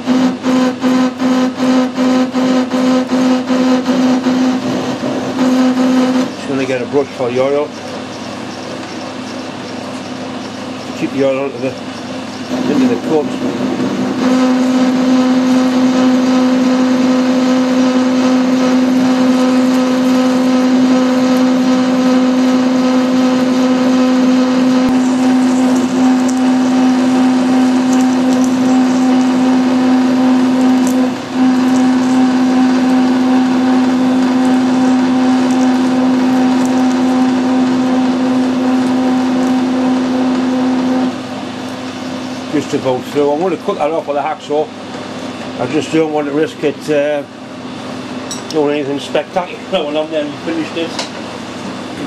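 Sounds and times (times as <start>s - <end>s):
metal lathe humming: 0.0s - 52.0s.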